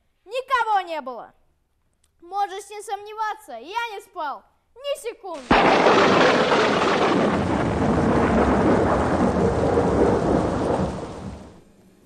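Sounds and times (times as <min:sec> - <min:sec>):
heavy rain: 0:05.4 - 0:11.6
rumbling thunder: 0:05.4 - 0:11.6.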